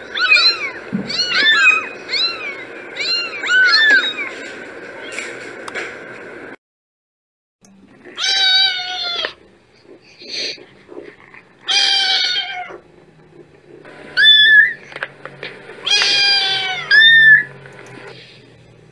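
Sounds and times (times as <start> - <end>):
kittens meowing: 0.0 - 5.3, 8.1 - 9.4, 11.3 - 12.8, 14.2 - 14.9, 15.8 - 17.5.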